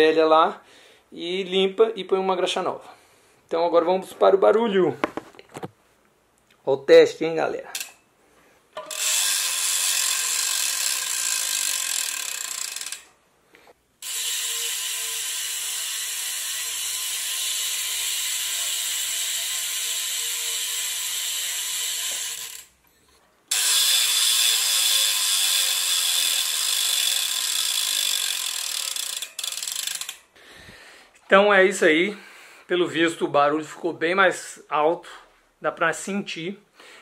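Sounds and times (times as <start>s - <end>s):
bicycle hub clicking fast: 8.8s - 13.1s, 14.0s - 22.7s, 23.5s - 30.2s.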